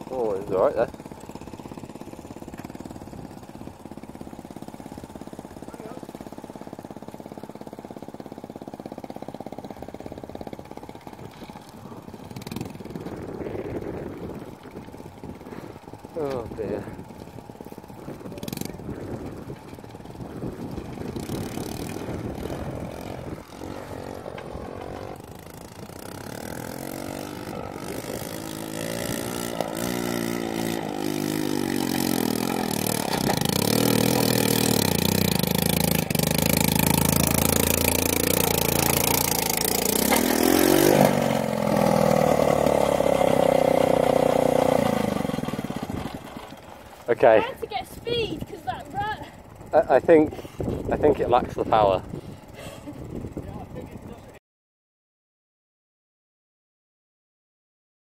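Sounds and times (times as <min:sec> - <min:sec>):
motorcycle engine labouring: 0:00.0 - 0:54.4
man speaking: 0:47.1 - 0:47.6.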